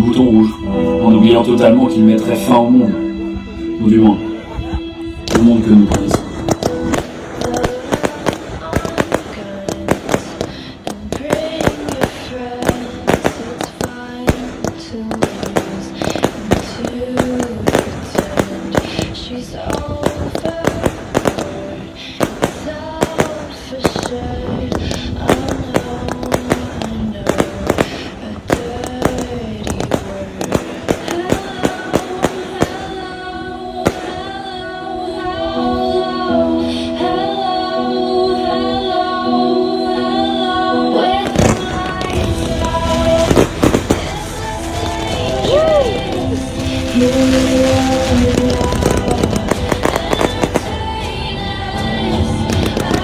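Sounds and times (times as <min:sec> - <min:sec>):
music with held vocal notes: 0:00.0 - 0:53.0
fireworks bangs and crackles: 0:05.2 - 0:34.6, 0:40.9 - 0:53.0.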